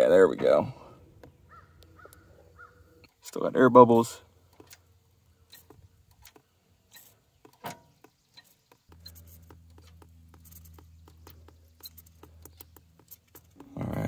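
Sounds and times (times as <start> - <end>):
low steady hum: 8.9 - 14.0.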